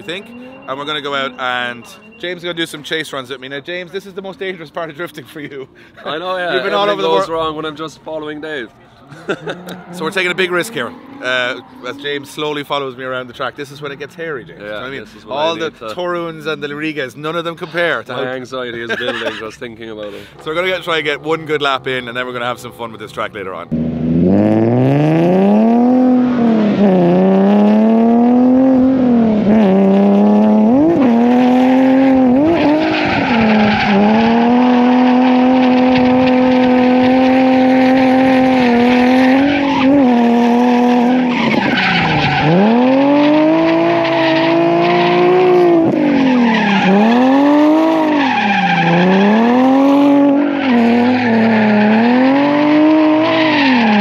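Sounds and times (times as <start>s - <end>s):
car engine revving hard: 23.7s - 54.0s
tyres squealing: 41.1s - 54.0s.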